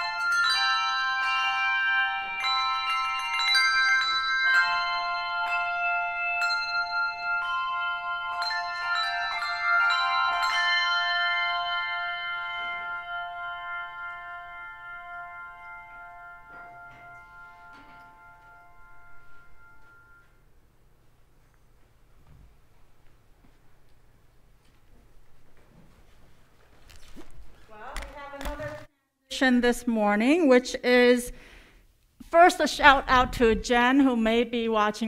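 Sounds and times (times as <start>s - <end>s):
handbell choir ringing chords: 0.0s - 20.4s.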